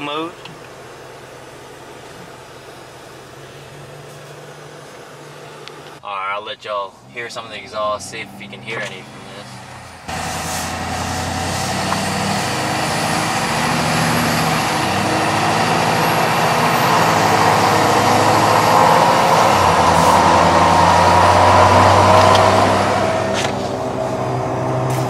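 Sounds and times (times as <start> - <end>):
diesel engine accelerating: 0.0 - 6.0, 7.0 - 25.0
tire road hum: 0.0 - 25.0
rising whine: 7.2 - 25.0.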